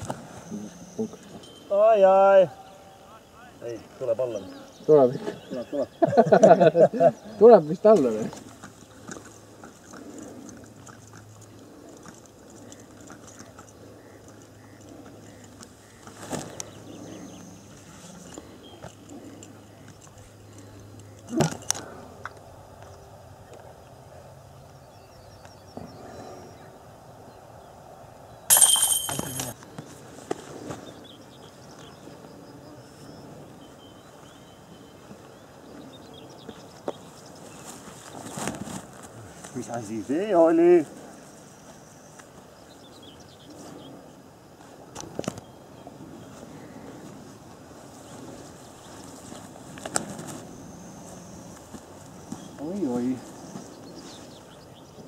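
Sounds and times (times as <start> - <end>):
disc hitting basket chains: 28.5 - 29.6.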